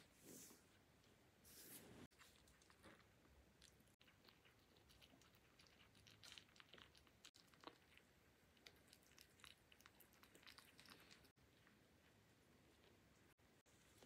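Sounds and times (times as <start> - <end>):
kitten crunching dry kibble: 2.1 - 13.0.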